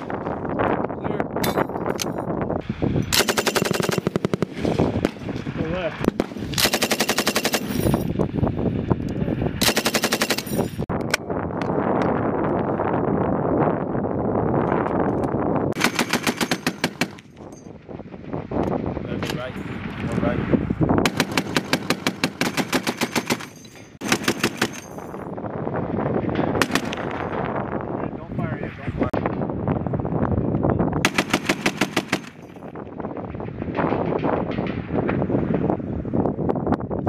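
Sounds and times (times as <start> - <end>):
machine gun bursts: 3.2 - 4.4, 6.6 - 7.8, 9.6 - 10.6, 15.8 - 17.1, 21.1 - 24.9
scattered gunshots: 3.2 - 5.2, 6.0 - 7.8, 15.8 - 17.2, 21.0 - 24.8, 26.5 - 27.2, 31.0 - 32.4.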